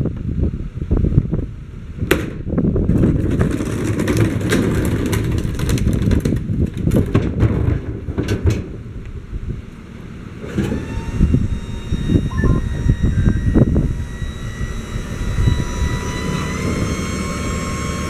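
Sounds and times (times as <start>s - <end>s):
cart wheels rumbling on asphalt: 2.6s - 10.9s.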